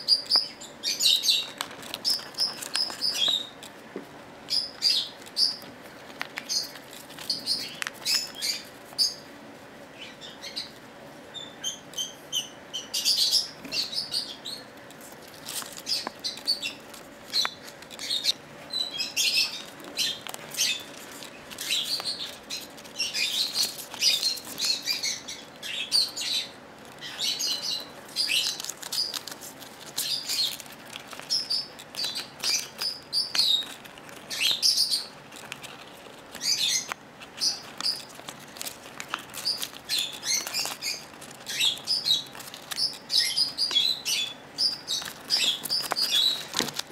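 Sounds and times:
bird chirping: 0:00.0 - 0:03.6, 0:04.5 - 0:05.7, 0:06.4 - 0:09.3, 0:09.9 - 0:14.7, 0:15.8 - 0:29.3, 0:30.0 - 0:30.6, 0:31.2 - 0:35.2, 0:36.3 - 0:38.2, 0:39.0 - 0:46.6
bird tearing paper: 0:01.3 - 0:03.8, 0:04.8 - 0:09.2, 0:14.8 - 0:18.4, 0:19.3 - 0:26.1, 0:26.8 - 0:46.9.

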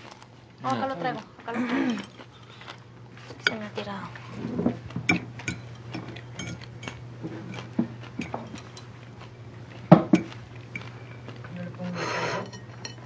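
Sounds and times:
low steady hum: 0:00.0 - 0:13.0
fork scraping a plate: 0:04.3 - 0:08.9, 0:11.9 - 0:13.0.

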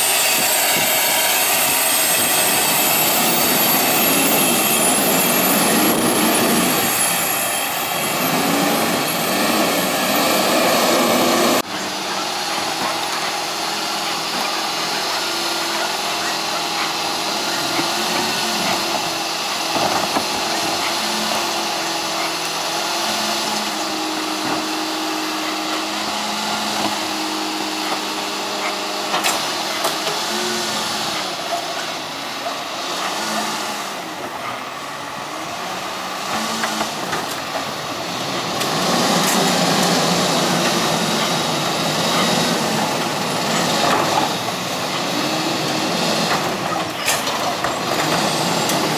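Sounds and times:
garbage truck engine running: 0:00.0 - 0:48.9.

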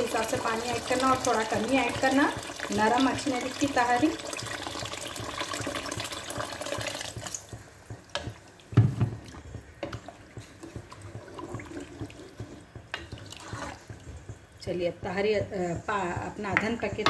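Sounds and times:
water pouring into a pot: 0:00.0 - 0:07.6, 0:10.8 - 0:12.4
metal spoon stirring a pot: 0:09.3 - 0:14.4
spoon knocking against pot: 0:15.1 - 0:17.0.

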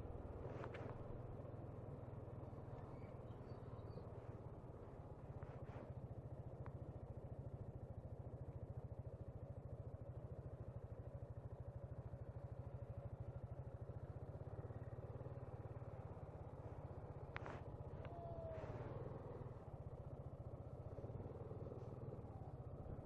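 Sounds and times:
scooter engine idling low: 0:00.0 - 0:23.0.

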